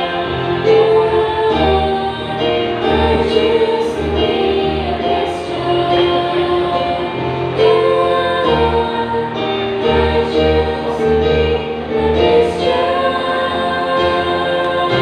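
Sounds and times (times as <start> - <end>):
instrumental accompaniment: 0.0 - 15.0
women singing gospel: 0.0 - 15.0.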